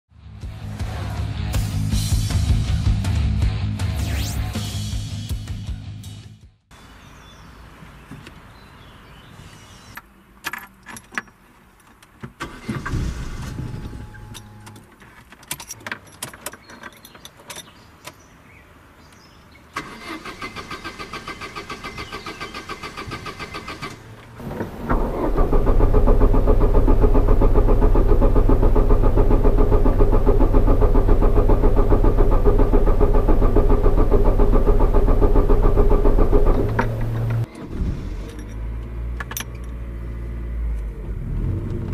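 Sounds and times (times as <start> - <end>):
car starter motor cranking: 19.8 - 37.7
car engine running: 24.4 - 37.5.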